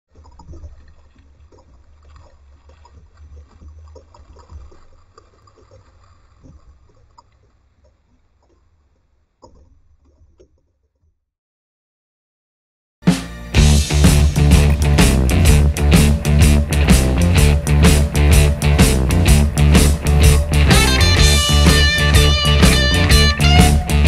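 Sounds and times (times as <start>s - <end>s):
water lapping against hull: 0.1s - 10.6s.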